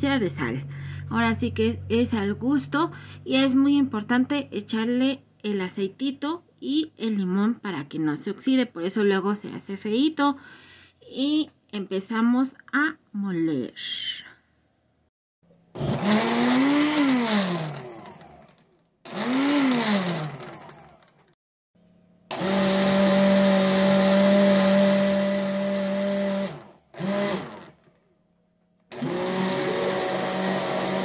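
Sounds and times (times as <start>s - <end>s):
blender motor running: 15.7s - 21.4s, 22.3s - 27.9s, 28.9s - 31.0s.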